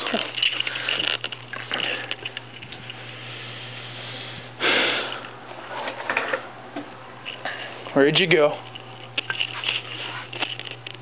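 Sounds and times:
low steady hum: 0.0 - 11.0
rustling handling noise: 8.2 - 11.0.

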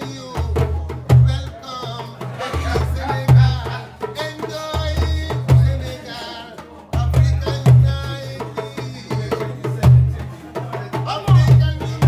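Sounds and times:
djembes beating: 0.0 - 12.0
man singing: 0.0 - 12.0.

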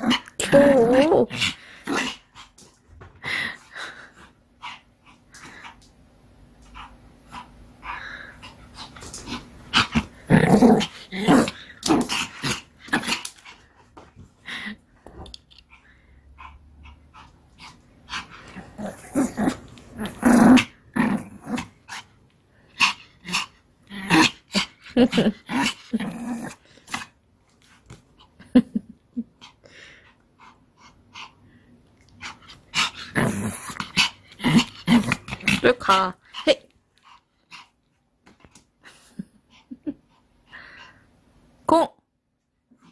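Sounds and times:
dog growling: 0.0 - 2.2, 6.8 - 13.3, 18.1 - 21.8, 22.8 - 26.7, 32.2 - 35.8.

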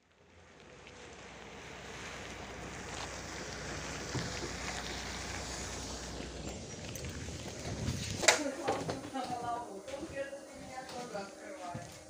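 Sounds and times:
bus engine running: 0.3 - 8.2
wind buffeting microphone: 3.9 - 9.5.

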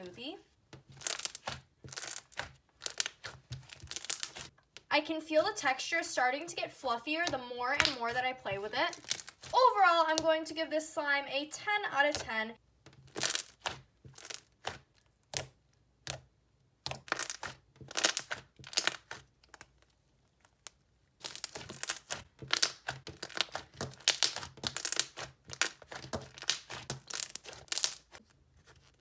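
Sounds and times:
slime clicking and popping: 1.0 - 4.4, 13.1 - 19.8, 20.6 - 28.2.

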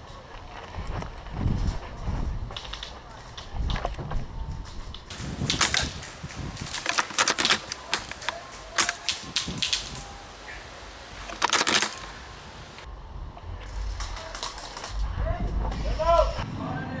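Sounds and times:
airsoft gunfire clicks and pops: 5.1 - 12.9.

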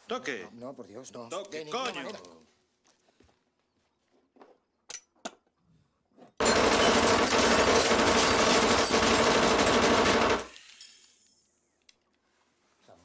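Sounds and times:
submachine gun automatic burst: 6.4 - 10.6.

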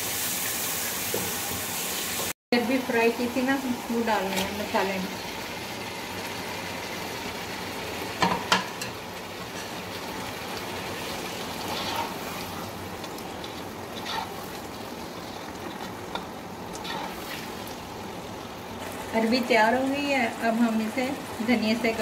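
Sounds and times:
spices sizzling in a pot: 0.0 - 22.0
spoon scraping a pot: 11.6 - 14.6, 16.8 - 17.4.

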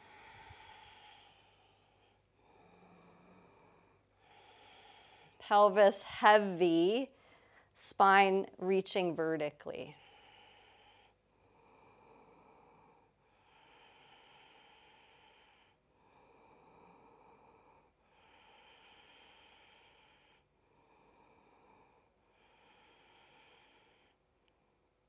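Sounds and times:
slow paced breathing: 0.0 - 7.8, 9.9 - 24.9.

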